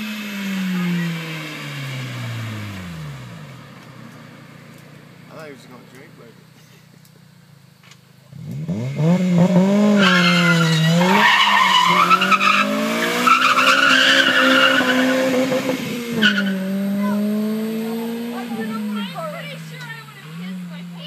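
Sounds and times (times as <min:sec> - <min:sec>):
car engine revving: 0:00.0 - 0:07.0, 0:07.6 - 0:21.0
tyres squealing: 0:10.0 - 0:21.0.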